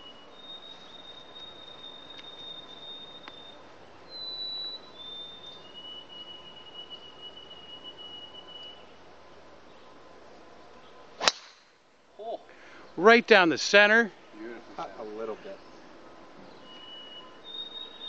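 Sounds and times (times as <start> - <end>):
insects trilling: 0.0 - 8.9.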